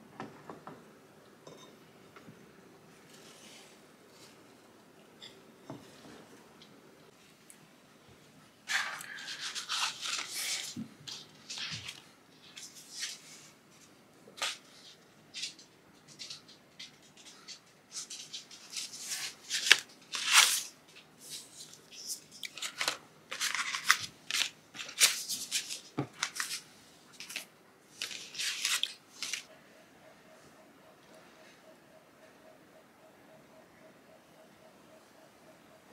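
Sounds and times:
paper envelopes rustling on table: 8.7 - 16.5, 17.1 - 29.5.

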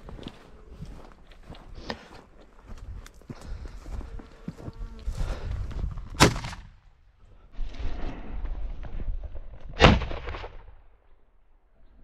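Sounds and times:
shotgun shot: 6.2 - 6.8, 9.8 - 10.8.

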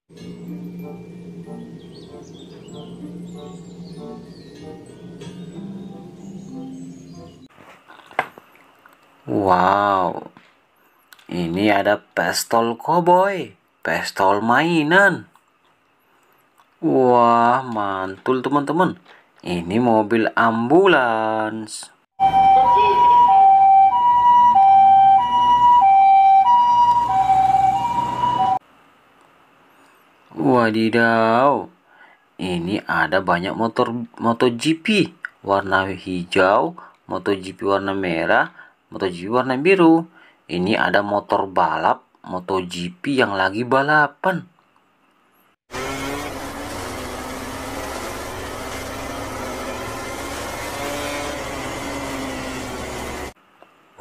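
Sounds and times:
two-tone ambulance siren: 22.2 - 28.6
racing motorcycles revving: 45.7 - 53.4.

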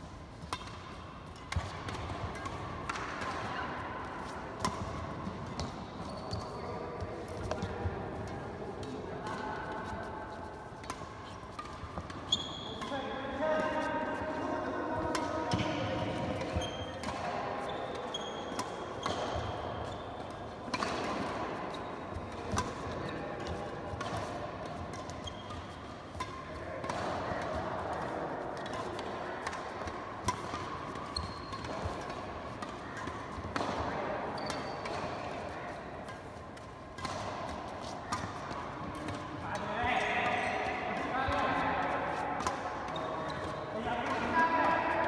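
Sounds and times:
rackets hitting shuttlecock: 0.1 - 45.0
shoe squeaks on court: 6.0 - 6.8, 12.2 - 13.0, 16.5 - 17.0, 17.6 - 20.2, 25.2 - 25.8, 31.1 - 32.1, 34.3 - 35.1.

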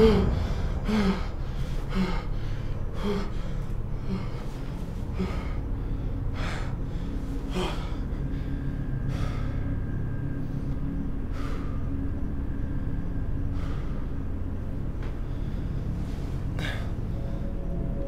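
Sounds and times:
person gasping: 0.0 - 4.6
steady low drone: 0.0 - 18.0.

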